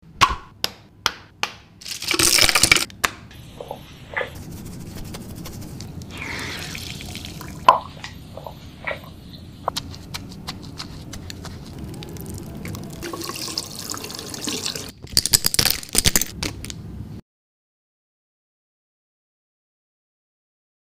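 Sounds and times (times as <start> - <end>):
wet squishing: 3.6 - 13.3
liquid dripping: 6.1 - 9.4, 11.7 - 14.9.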